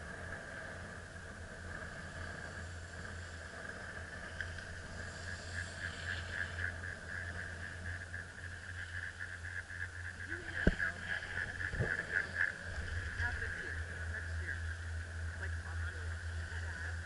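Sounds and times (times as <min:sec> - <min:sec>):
chairlift mechanical hum: 0:00.0 - 0:17.0
fast rhythmic pulsing: 0:00.0 - 0:17.0
high whine: 0:00.0 - 0:17.0.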